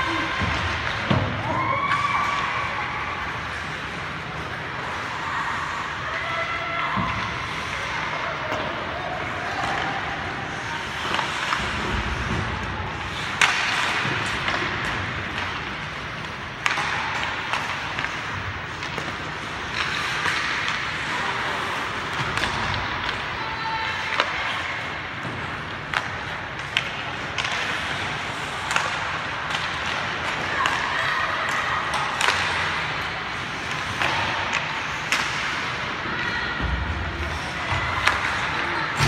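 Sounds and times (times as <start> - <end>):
hockey sticks and puck clacking: 0.0 - 39.0
skate blades scraping ice: 7.4 - 36.1.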